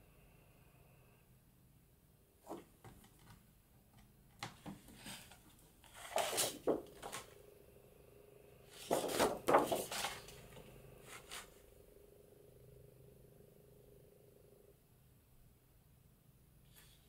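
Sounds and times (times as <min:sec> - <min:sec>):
paper sheets rustling: 0:04.7 - 0:07.4, 0:08.7 - 0:11.6.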